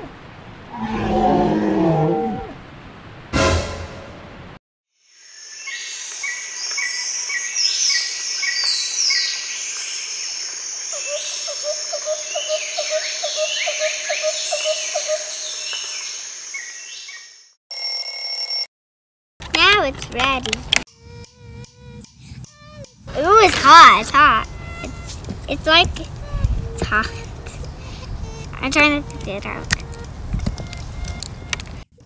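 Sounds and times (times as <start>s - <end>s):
insects: 5.0s - 17.5s
birds chirping and whistling: 29.2s - 31.6s
repeating low bird call: 29.6s - 31.6s.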